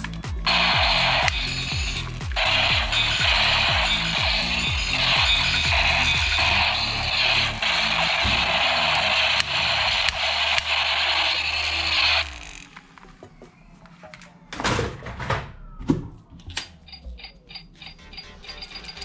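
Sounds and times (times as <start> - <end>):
toy gun electronic crackling: 0.0 - 13.0.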